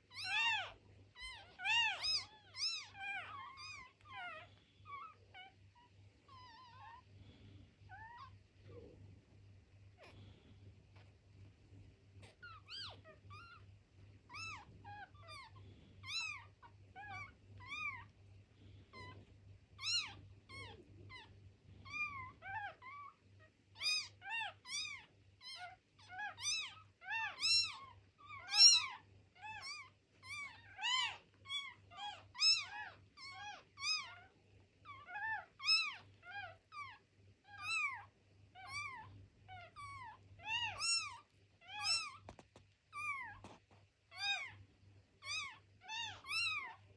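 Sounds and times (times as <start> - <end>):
faint low hum: 0.0 - 46.9
kittens mewing: 0.1 - 7.1, 23.8 - 34.3, 34.9 - 42.4.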